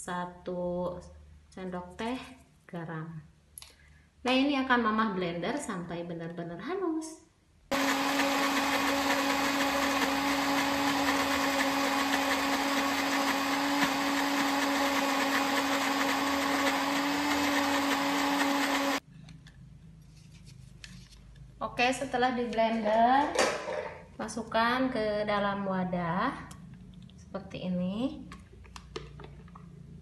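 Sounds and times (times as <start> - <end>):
blender motor running: 7.7 - 19.0.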